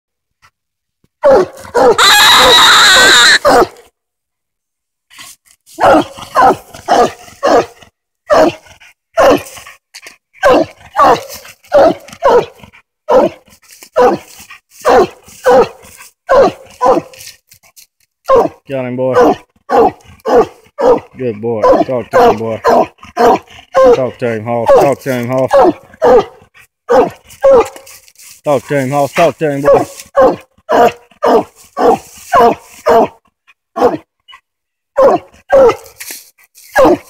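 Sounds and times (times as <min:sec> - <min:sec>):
dog barking: 0:01.2 - 0:02.6, 0:03.4 - 0:03.8, 0:05.8 - 0:09.6, 0:10.4 - 0:17.2, 0:18.3 - 0:27.9, 0:29.6 - 0:34.1, 0:34.9 - 0:36.0, 0:36.8 - 0:37.0
dog baying: 0:01.2 - 0:03.8, 0:05.8 - 0:09.6, 0:10.4 - 0:17.2, 0:19.2 - 0:24.0, 0:25.5 - 0:27.9, 0:29.6 - 0:34.4, 0:35.0 - 0:35.9, 0:36.8 - 0:37.0.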